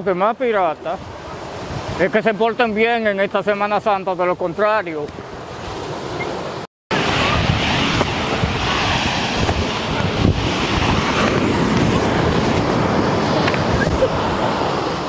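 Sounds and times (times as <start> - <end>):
surf washing onto beach: 0.3 - 15.0
wind rumbling on microphone: 1.0 - 2.2, 5.2 - 15.0.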